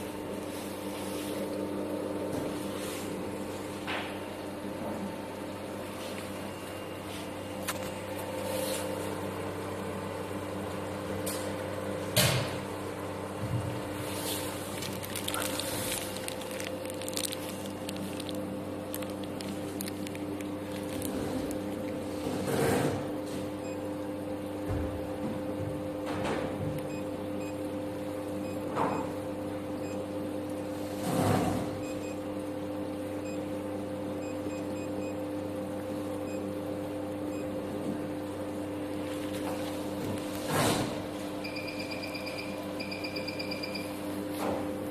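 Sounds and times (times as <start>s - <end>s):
plastic bags crinkling: 14.0s - 22.2s
plastic wrap rustling: 14.0s - 22.2s
machine humming steady tones: 41.1s - 44.2s.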